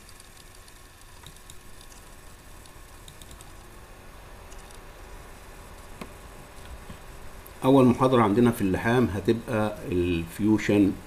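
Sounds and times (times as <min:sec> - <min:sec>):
computer mouse and keyboard clicks: 0:00.0 - 0:03.6, 0:04.5 - 0:04.8
low steady hum: 0:00.0 - 0:11.0.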